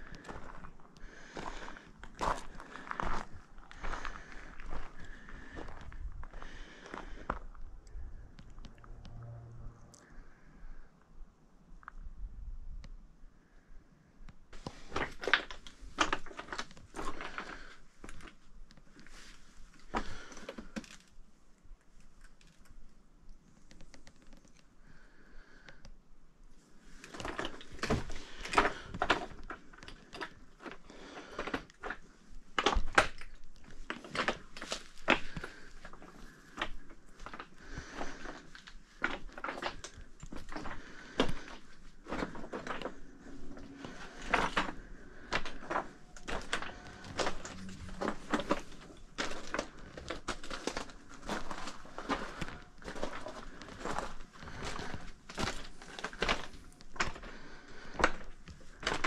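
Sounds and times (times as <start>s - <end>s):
footsteps on rocky ground: 0.0s - 7.7s, 14.6s - 21.0s, 26.9s - 59.0s.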